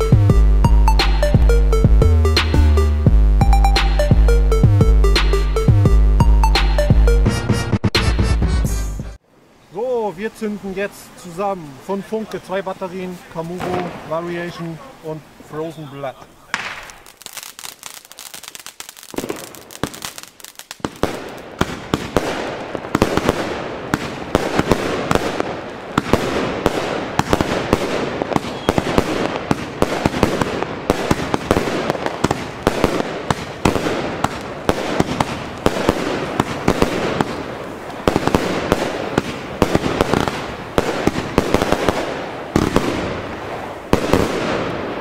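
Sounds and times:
fireworks launch shots and bursts: 11.9s - 45.0s.

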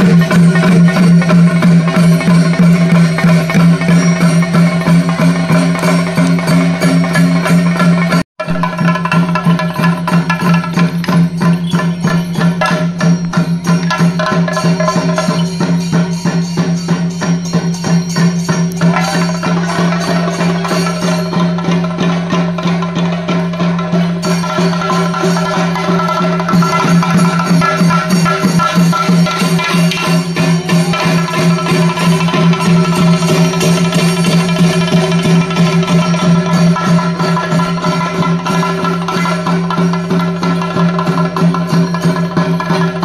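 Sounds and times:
drums beaten with sticks: 0.0s - 43.0s.

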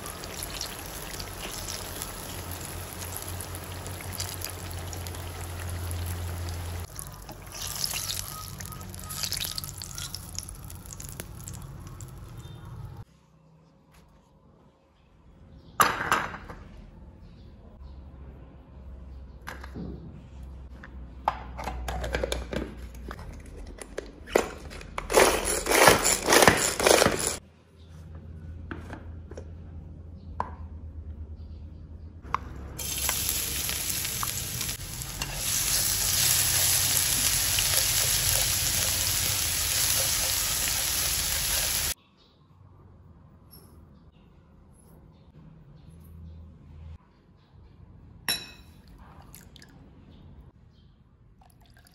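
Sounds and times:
steady hiss: 32.8s - 42.0s.

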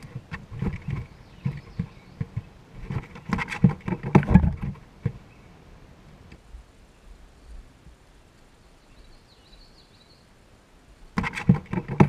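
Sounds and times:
chipmunk scraping inside wooden box: 11.2s - 12.0s.

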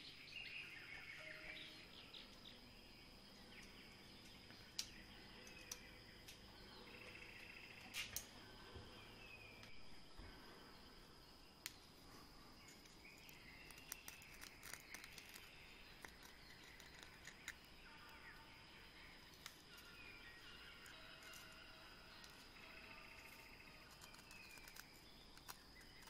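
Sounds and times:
faint chirps: 0.0s - 26.0s.

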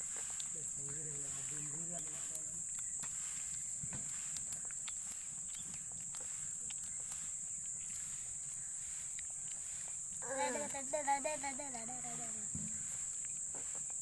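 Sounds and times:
faint clicks and scuffs: 0.0s - 10.8s
insects droning: 0.0s - 14.0s.

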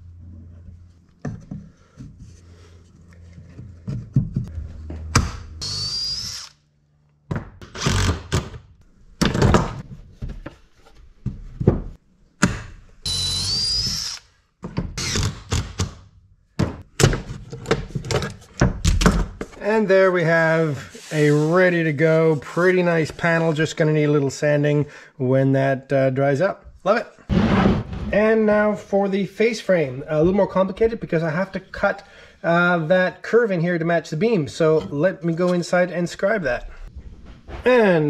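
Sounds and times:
cordless drill whining: 13.1s - 14.3s.

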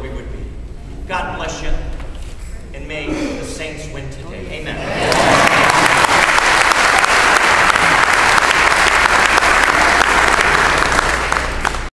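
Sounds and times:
congregation applauding: 5.0s - 11.9s.

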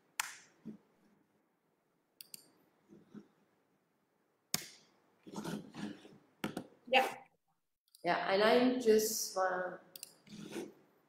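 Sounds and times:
mouse clicks: 2.2s - 2.5s.

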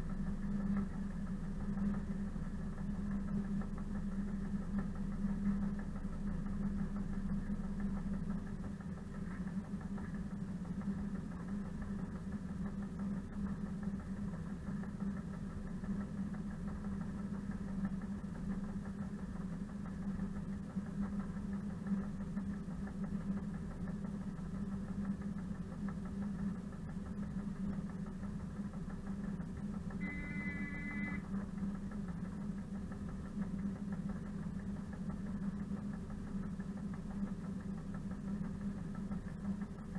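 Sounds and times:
brief high tone: 30.0s - 31.2s
diesel locomotive engine idling: 30.0s - 31.3s.

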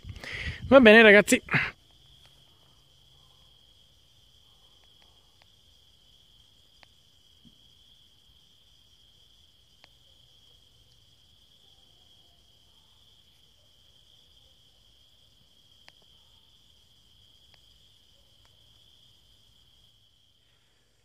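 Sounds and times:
crickets trilling: 0.0s - 21.0s
small ticks: 1.8s - 3.5s, 4.4s - 5.8s, 6.4s - 7.8s, 9.3s - 13.6s, 15.4s - 20.0s.

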